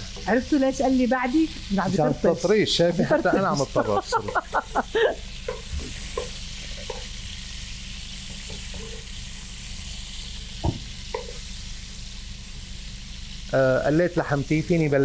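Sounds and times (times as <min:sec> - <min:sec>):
meat sizzling in hot oil: 0:00.0 - 0:15.0
knock: 0:10.6 - 0:10.9.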